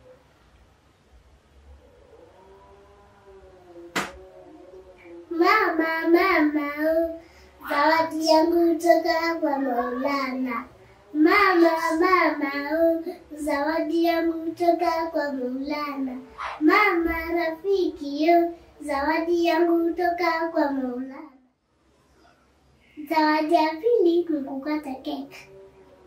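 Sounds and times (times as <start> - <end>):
boy singing: 5.3 - 21.4, 23.0 - 25.4.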